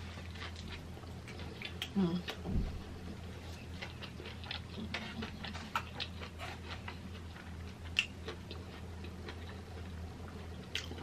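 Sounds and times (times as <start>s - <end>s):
low steady hum: 0.0s - 11.0s
mouth chewing: 3.3s - 11.0s.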